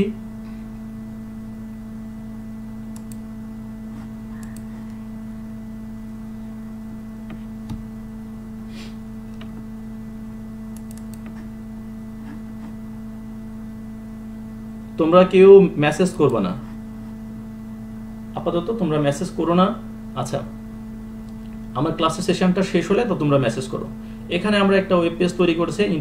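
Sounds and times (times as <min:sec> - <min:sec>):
low electrical hum: 0:00.0 - 0:26.0
computer mouse clicks: 0:02.9 - 0:03.2, 0:03.9 - 0:05.0, 0:10.7 - 0:11.5.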